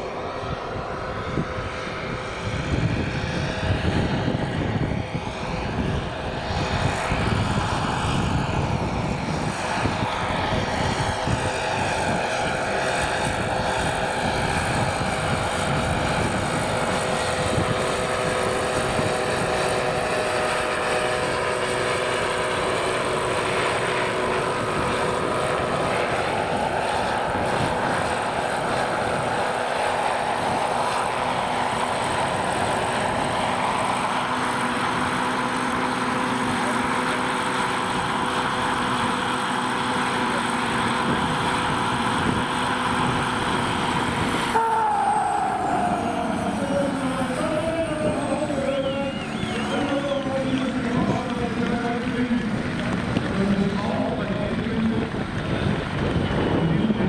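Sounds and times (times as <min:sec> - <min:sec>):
helicopter rotor blades beating: 0:00.0 - 0:57.0
helicopter turbine whine: 0:00.0 - 0:57.0.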